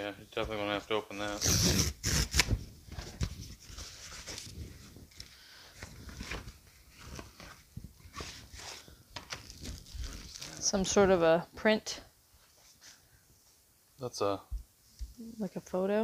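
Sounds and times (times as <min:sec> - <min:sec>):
cardboard tear strip ripping: 0:01.3 - 0:02.6
cardboard and paper rustling: 0:01.5 - 0:11.0.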